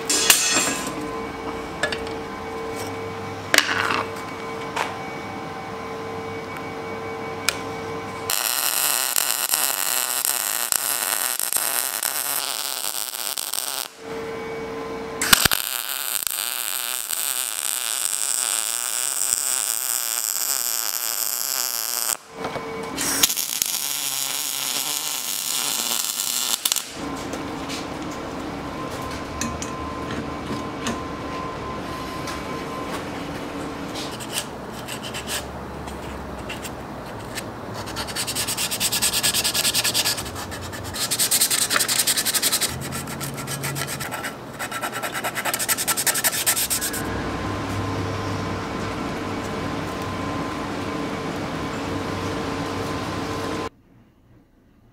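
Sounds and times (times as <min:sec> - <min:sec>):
faint steady tones: 0:00.0 - 0:11.0, 0:13.8 - 0:15.2
welding arc crackling hiss: 0:08.3 - 0:14.0, 0:15.2 - 0:22.3, 0:23.0 - 0:27.0.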